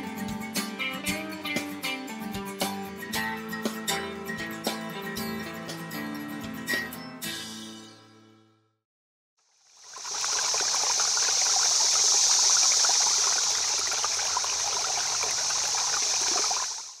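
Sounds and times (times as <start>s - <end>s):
running water rushing: 9.6s - 17.0s.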